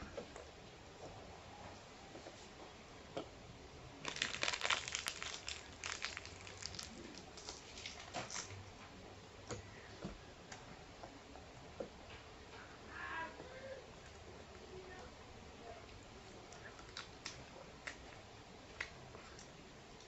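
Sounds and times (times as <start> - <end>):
foil wrapper crinkling: 4.0 - 8.6.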